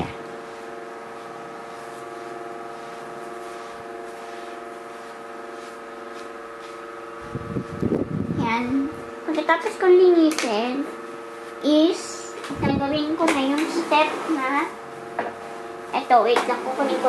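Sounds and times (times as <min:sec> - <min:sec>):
electrical hum: 0:00.0 - 0:17.0
powder puff brushing: 0:00.4 - 0:07.3.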